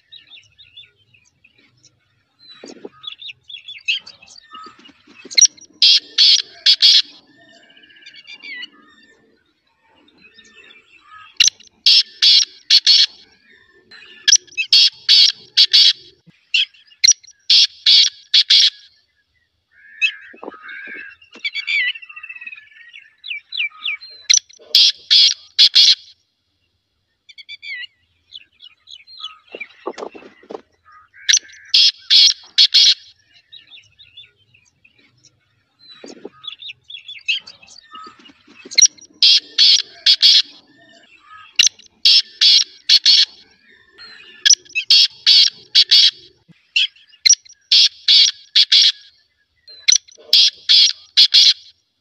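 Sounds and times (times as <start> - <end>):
faint bird chirps: 0.0 - 51.8
partridge calling high-pitched notes: 2.5 - 9.3, 10.4 - 13.2, 13.8 - 18.9, 20.0 - 22.5, 23.4 - 26.2, 29.2 - 33.2, 35.9 - 51.7.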